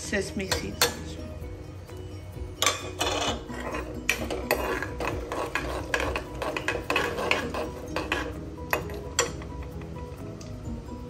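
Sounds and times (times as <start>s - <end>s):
spoon scraping seeds in oil pan: 2.6s - 9.4s.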